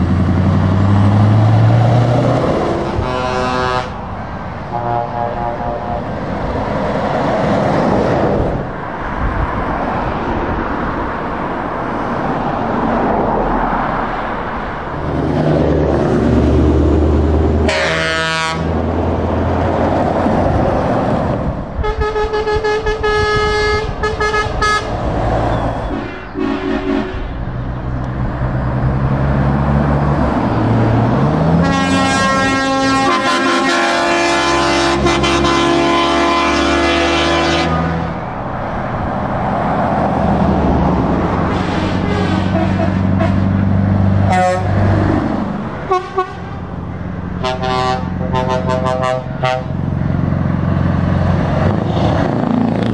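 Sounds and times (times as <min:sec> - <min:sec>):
truck engine revving: 0:00.0 - 0:52.9
trucks driving past: 0:00.0 - 0:52.9
truck air horns: 0:02.8 - 0:04.1, 0:04.7 - 0:06.2, 0:17.6 - 0:18.8, 0:21.8 - 0:25.0, 0:25.8 - 0:27.5, 0:31.5 - 0:38.2, 0:41.5 - 0:43.6, 0:44.3 - 0:44.9, 0:45.8 - 0:46.7, 0:47.4 - 0:49.8.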